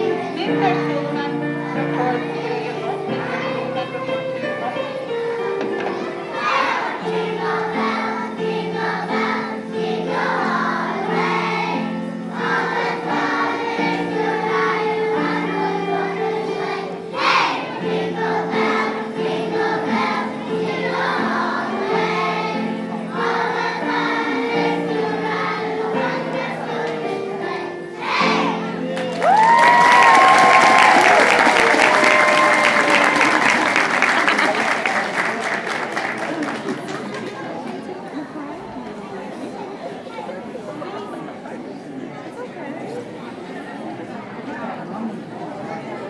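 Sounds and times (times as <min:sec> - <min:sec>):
instrumental accompaniment: 0:00.0 - 0:33.4
children's choir singing: 0:00.0 - 0:42.0
applause and cheering: 0:28.9 - 0:37.6.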